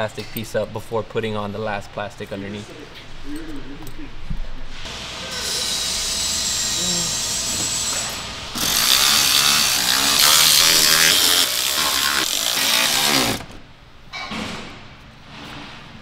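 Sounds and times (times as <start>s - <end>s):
power driver running screws: 8.6s - 13.5s.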